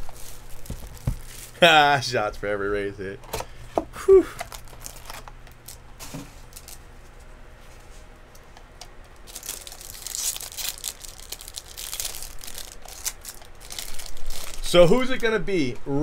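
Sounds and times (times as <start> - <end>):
foil wrapper torn and crinkled: 0.0 - 1.6, 4.3 - 6.9, 9.2 - 15.3.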